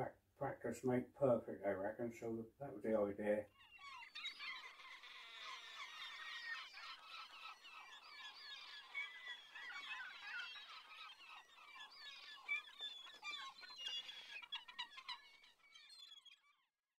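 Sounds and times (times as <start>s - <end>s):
faint birds chirping: 0.0s - 16.9s.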